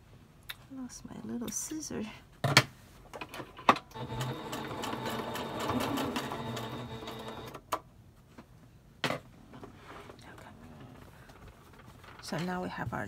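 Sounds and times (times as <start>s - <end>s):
sewing machine stitching: 3.9s - 7.6s.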